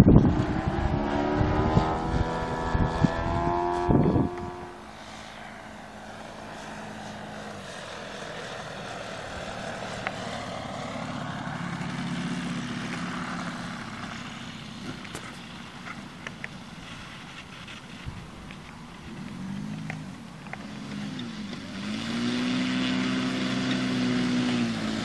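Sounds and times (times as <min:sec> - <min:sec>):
low drone with wind hiss: 0:00.0 - 0:25.0.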